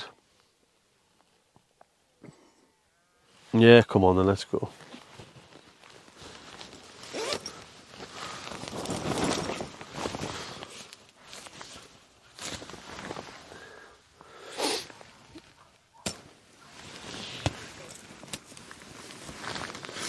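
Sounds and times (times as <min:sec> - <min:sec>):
fabric and bags rustling: 0:04.5 - 0:14.1, 0:14.8 - 0:20.0.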